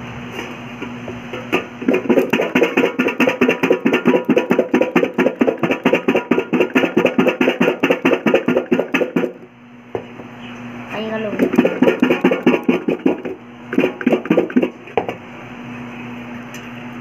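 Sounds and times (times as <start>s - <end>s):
fruit rattling in steel vessel: 0.8s - 9.4s, 11.2s - 15.0s.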